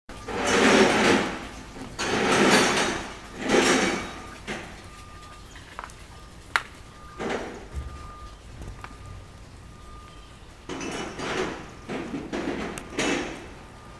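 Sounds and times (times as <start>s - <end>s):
metal pipes clattering: 0.1s - 6.0s, 10.6s - 13.8s.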